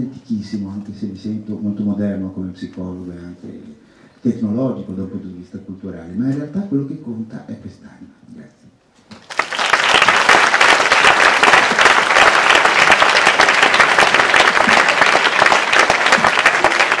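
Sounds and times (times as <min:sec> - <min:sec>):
audience applauding: 0:09.2 - 0:17.0.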